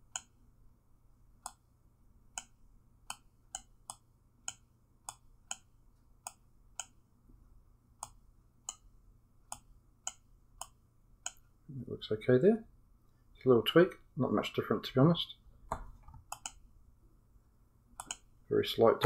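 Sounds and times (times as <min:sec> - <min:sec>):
computer mouse clicking: 0:01.4 - 0:01.6, 0:02.3 - 0:07.0, 0:09.5 - 0:11.4, 0:15.8 - 0:16.6, 0:18.0 - 0:18.3.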